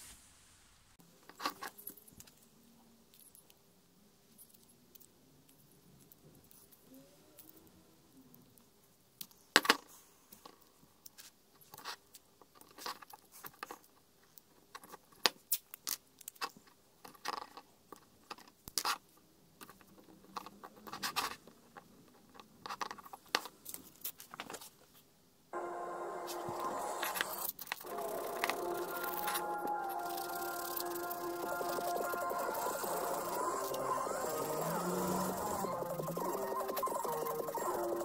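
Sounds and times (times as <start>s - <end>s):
masking tape crinkling and tearing: 27.0s - 38.0s.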